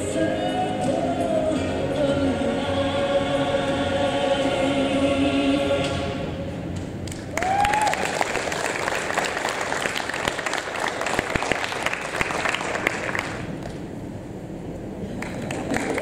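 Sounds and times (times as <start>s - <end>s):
audience applauding: 7.1s - 13.8s, 15.1s - 16.0s
audience cheering: 7.3s - 13.2s.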